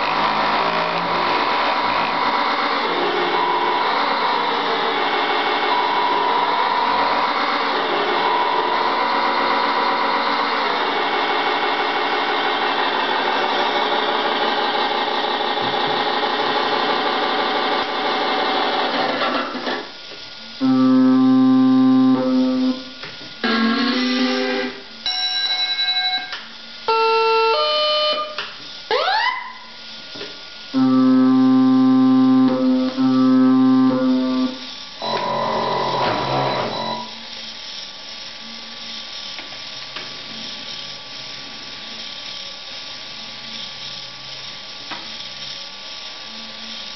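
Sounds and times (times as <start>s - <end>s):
steady electronic tones: 20.6s - 26.3s, 30.8s - 37.2s.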